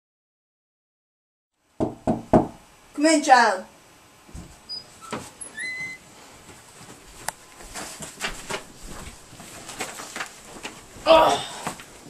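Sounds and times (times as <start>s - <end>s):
clothing rustle: 4.3s - 12.0s
footsteps: 4.3s - 12.0s
door squeak: 4.6s - 6.0s.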